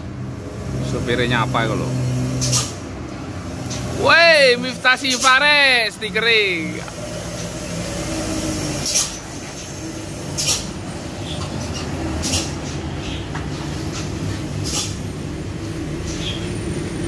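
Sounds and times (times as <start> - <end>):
truck diesel engine: 0.0 - 17.0
short air hisses: 2.3 - 2.8, 8.8 - 10.8, 12.2 - 12.6.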